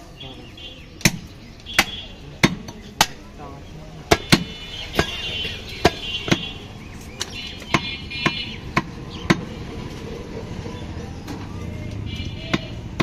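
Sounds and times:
cleaver chopping meat on wood block: 0:01.0 - 0:03.2, 0:04.1 - 0:05.2, 0:05.8 - 0:06.6, 0:07.2 - 0:09.5, 0:12.4 - 0:13.0.

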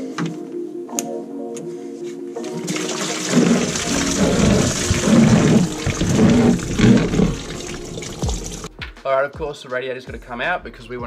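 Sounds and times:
background music: 0:00.0 - 0:11.0
coolant splashing into bucket: 0:02.4 - 0:08.7.

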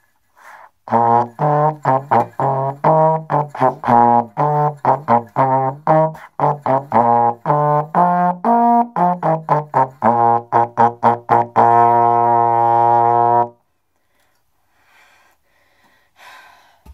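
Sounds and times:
faint breath: 0:00.0 - 0:00.8, 0:13.9 - 0:16.9
solo trombone playing: 0:00.8 - 0:13.6.

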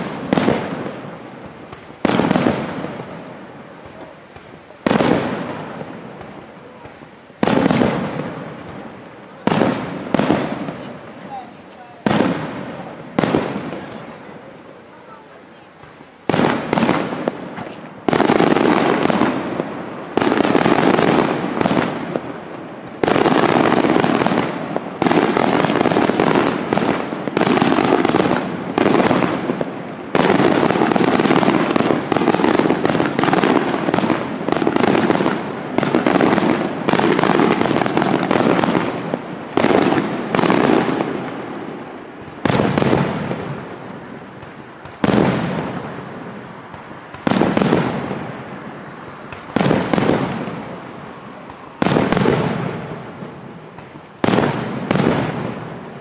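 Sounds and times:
firework shells bursting: 0:49.3 - 0:50.9.

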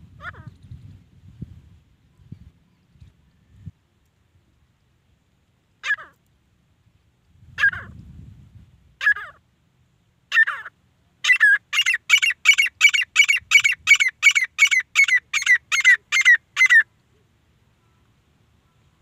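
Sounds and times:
francolin calling: 0:10.3 - 0:19.0.

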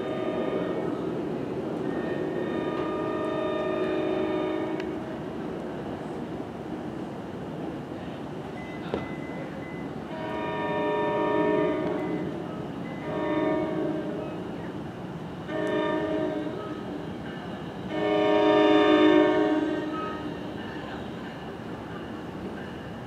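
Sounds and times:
train horn blasts: 0:00.0 - 0:00.9, 0:02.0 - 0:05.1, 0:10.1 - 0:12.4, 0:13.0 - 0:14.4, 0:15.5 - 0:16.9, 0:17.9 - 0:20.4.

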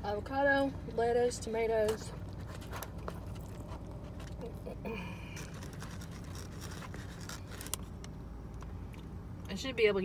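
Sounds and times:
low engine hum: 0:00.0 - 0:10.0
food rustling and clicks: 0:05.4 - 0:08.2.

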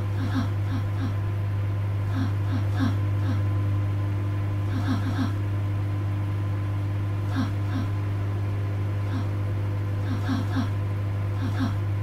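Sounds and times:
microwave oven humming: 0:00.0 - 0:12.0.

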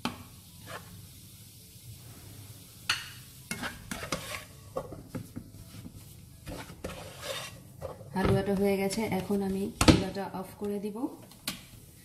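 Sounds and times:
spatula scraping frying pan: 0:00.6 - 0:01.0, 0:03.5 - 0:09.8.

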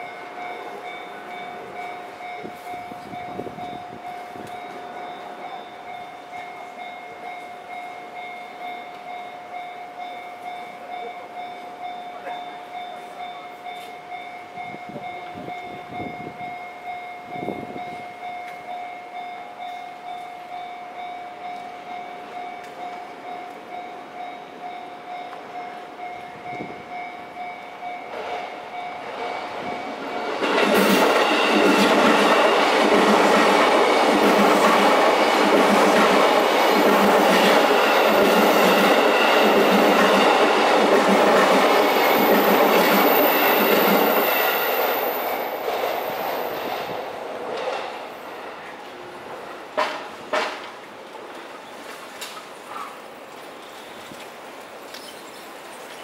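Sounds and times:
level crossing warning bell: 0:00.0 - 0:46.9
train wheels clacking over rail joints: 0:28.1 - 0:48.2, 0:49.3 - 0:51.4.

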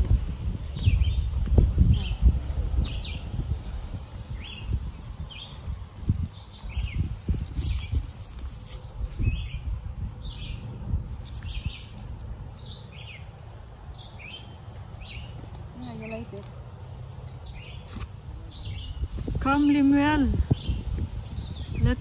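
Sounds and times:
songbird calling: 0:04.0 - 0:05.7, 0:08.7 - 0:10.6, 0:11.2 - 0:16.5, 0:17.2 - 0:22.0
dry leaves and twigs rustling: 0:05.5 - 0:12.2.

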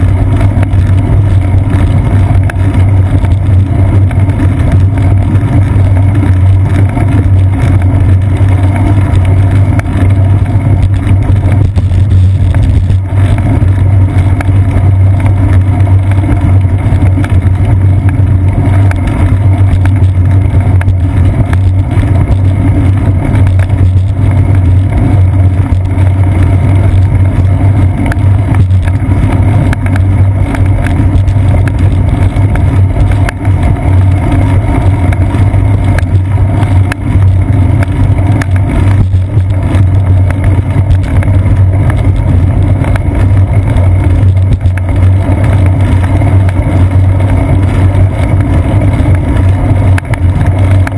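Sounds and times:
road vibration rumble: 0:00.0 - 0:50.9.

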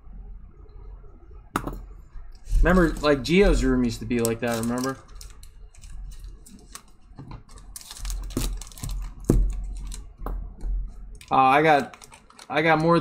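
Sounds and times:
plastic card sleeves rustling: 0:02.5 - 0:06.9, 0:07.6 - 0:10.1, 0:11.2 - 0:13.0.

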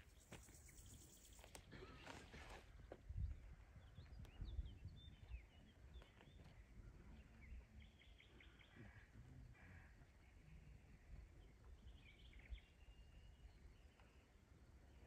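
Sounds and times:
small birds chirping: 0:00.0 - 0:02.0, 0:02.8 - 0:09.1.

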